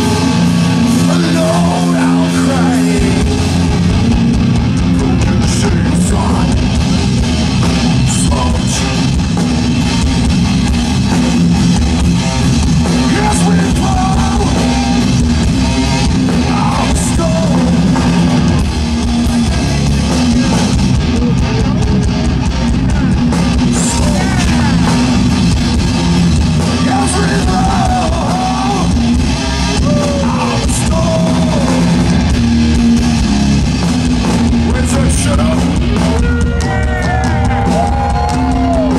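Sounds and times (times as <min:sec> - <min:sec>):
distorted electric guitars: 0:00.0 - 0:38.9
drum kit: 0:00.0 - 0:38.9
electric bass: 0:00.0 - 0:38.9
man singing: 0:00.9 - 0:03.7, 0:04.7 - 0:06.8, 0:08.0 - 0:08.9, 0:13.0 - 0:15.0, 0:16.3 - 0:18.0, 0:23.6 - 0:25.1, 0:26.6 - 0:29.0, 0:29.8 - 0:32.2, 0:34.6 - 0:37.4.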